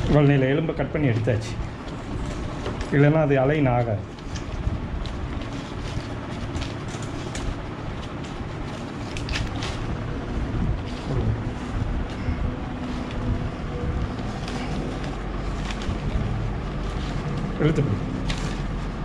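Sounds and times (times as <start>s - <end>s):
low background rumble: 0.0s - 19.0s
tape crackling and clicking: 3.8s - 11.2s, 12.0s - 19.0s.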